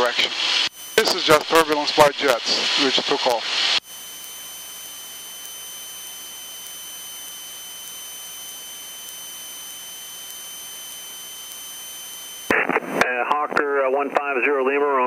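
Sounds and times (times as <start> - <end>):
high-pitched whine: 0.0 - 12.7
electrical hiss: 0.6 - 12.6.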